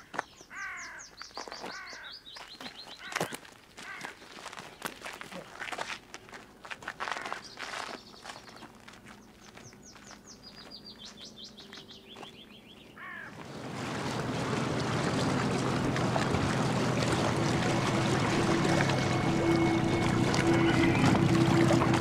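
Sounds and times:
water: 0:01.4 - 0:22.0
outboard motor running: 0:13.0 - 0:22.0.

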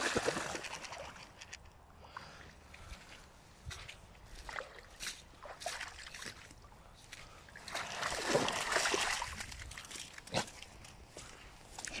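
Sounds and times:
dog splashing through water: 0:00.0 - 0:01.2, 0:04.4 - 0:06.5, 0:07.6 - 0:10.6.

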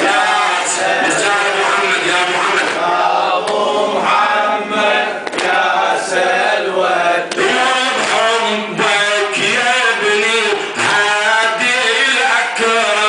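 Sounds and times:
man chanting into a microphone: 0:00.0 - 0:04.1, 0:07.1 - 0:13.0
chest beating slaps: 0:05.2 - 0:05.6.

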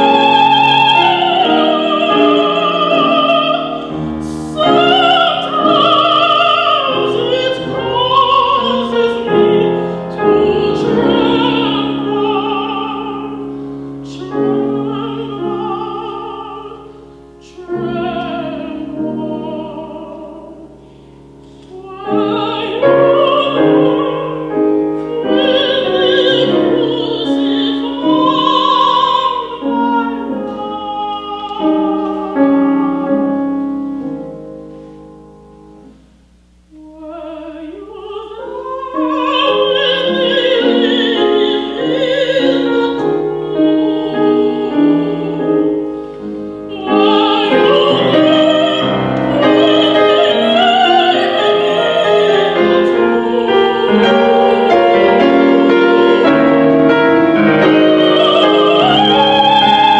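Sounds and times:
woman singing opera with vibrato: 0:00.0 - 0:33.8, 0:36.7 - 0:59.9
grand piano: 0:00.0 - 0:59.9.

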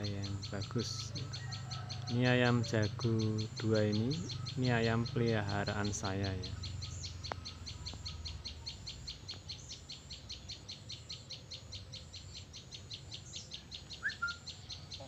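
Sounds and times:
rapid high-pitched chirps: 0:00.0 - 0:14.7.

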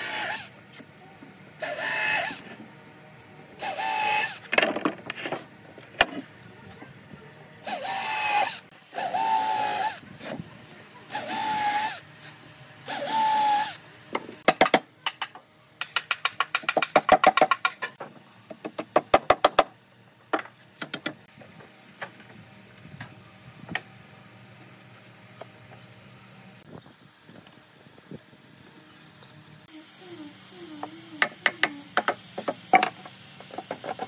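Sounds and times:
cordless drill whining: 0:01.6 - 0:02.4, 0:03.6 - 0:04.4, 0:07.6 - 0:10.0, 0:11.1 - 0:12.0, 0:12.9 - 0:13.8.

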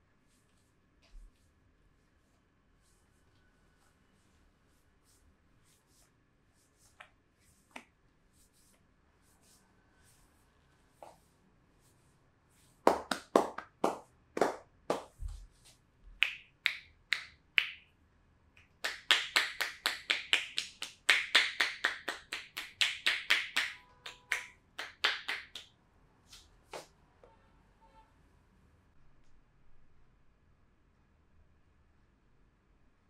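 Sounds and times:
hands slapping a back: 0:06.8 - 0:08.0, 0:12.8 - 0:15.4, 0:18.6 - 0:25.7.

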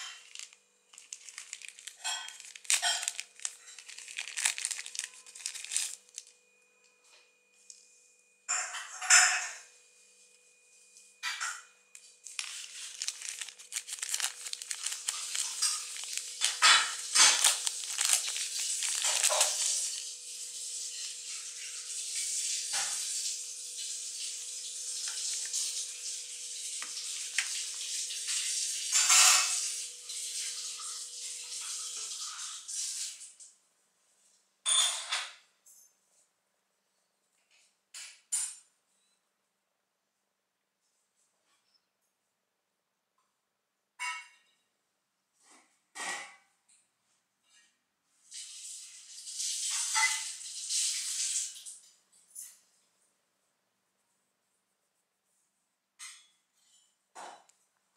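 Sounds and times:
plastic packaging rustling: 0:00.0 - 0:06.4, 0:12.0 - 0:23.3, 0:24.9 - 0:26.0, 0:26.8 - 0:29.6.

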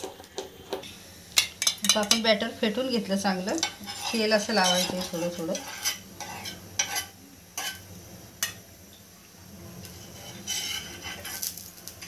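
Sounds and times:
metal spoon clicking on pan: 0:01.4 - 0:02.3.

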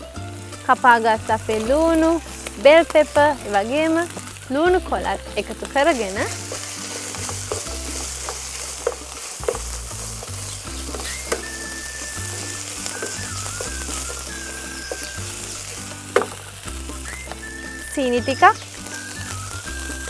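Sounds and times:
food sizzling in hot oil: 0:00.0 - 0:20.0
wooden spatula scraping pan: 0:05.9 - 0:16.4.

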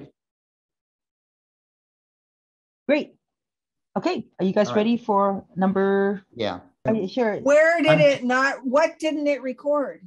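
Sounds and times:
man's voice: 0:07.9 - 0:08.2.

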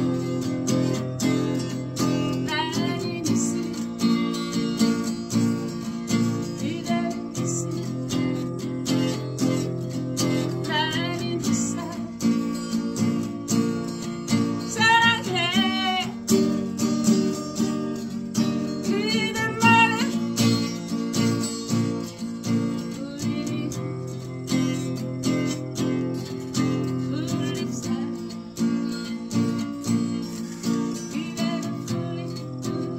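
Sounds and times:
strummed acoustic guitar: 0:00.0 - 0:32.9
woman singing a ballad: 0:01.6 - 0:04.3, 0:06.2 - 0:09.6, 0:10.2 - 0:12.7, 0:14.4 - 0:16.7, 0:18.7 - 0:20.7, 0:22.5 - 0:25.0, 0:26.6 - 0:29.0, 0:29.8 - 0:32.9.

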